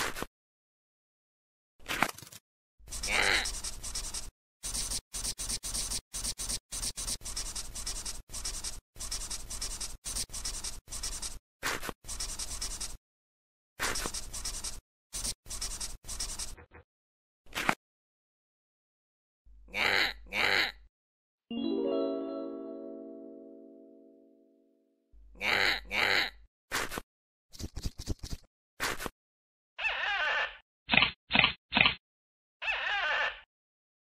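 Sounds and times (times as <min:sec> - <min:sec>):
pen scribbling on paper: 0:02.9 - 0:13.0, 0:13.8 - 0:16.6.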